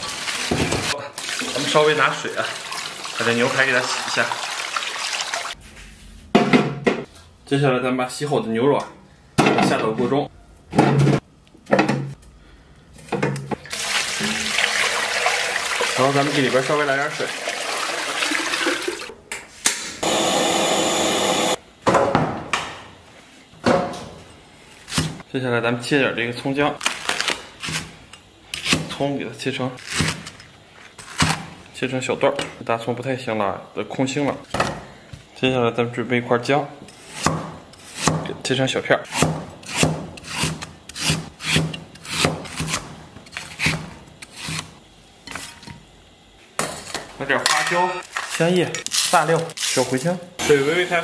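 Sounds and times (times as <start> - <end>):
gas burner roaring: 20.0 - 21.6
cleaver chopping on wooden board: 39.1 - 42.9.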